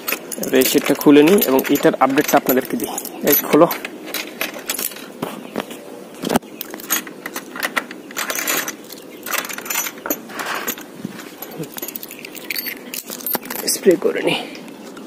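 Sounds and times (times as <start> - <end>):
key working a padlock: 0.0 - 3.8, 11.4 - 13.7
metal chain rattling: 0.0 - 5.1, 6.8 - 14.0.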